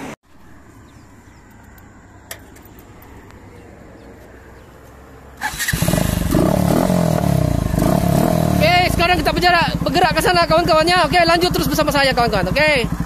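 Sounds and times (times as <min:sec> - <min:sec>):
motorcycle engine running: 0:05.4 - 0:13.0.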